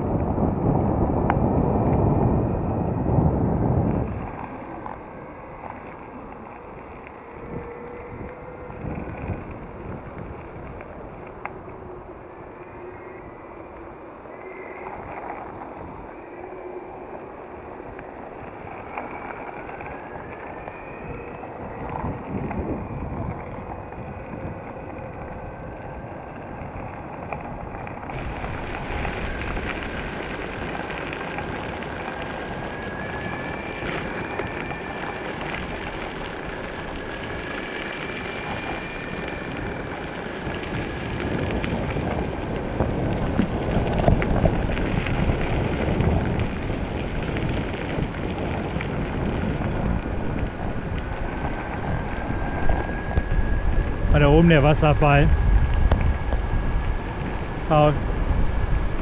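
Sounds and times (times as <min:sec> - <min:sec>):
wheels rolling on gravel: 0:00.0 - 0:59.0
wind on microphone: 0:00.0 - 0:59.0
electric motor whine: 0:28.1 - 0:59.0.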